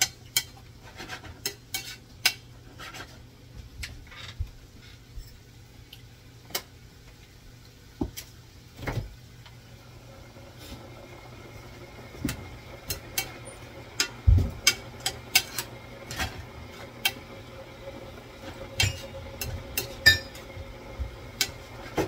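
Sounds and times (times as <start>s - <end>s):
spatula scraping frying pan: 0.0s - 3.3s, 12.8s - 17.2s, 18.4s - 20.5s.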